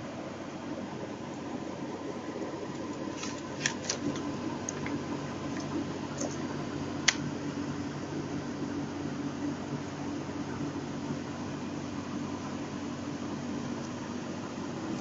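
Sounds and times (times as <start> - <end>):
background hum: 0.0 - 15.0
paper card rustling: 2.8 - 6.4.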